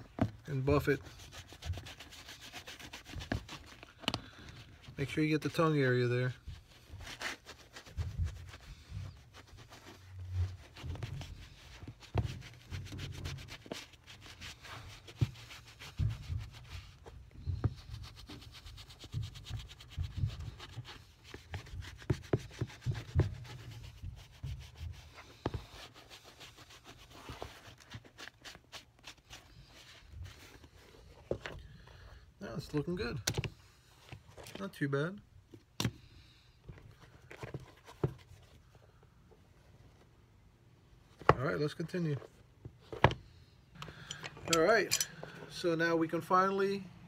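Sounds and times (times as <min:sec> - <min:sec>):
shoe handling knocks and clicks: 0:00.0 - 0:00.5, 0:02.8 - 0:04.8, 0:15.0 - 0:25.9, 0:30.2 - 0:31.6, 0:33.2 - 0:34.6, 0:36.6 - 0:38.5, 0:41.1 - 0:41.5, 0:42.6 - 0:44.9
sponge rubbing leather: 0:00.1 - 0:05.2, 0:06.3 - 0:31.2.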